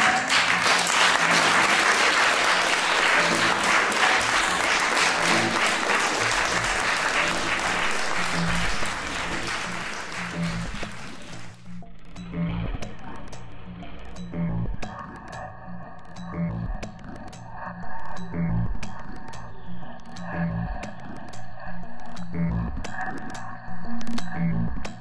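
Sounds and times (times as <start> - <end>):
audience applauding: 0.0 - 11.6
music playing: 0.0 - 15.3.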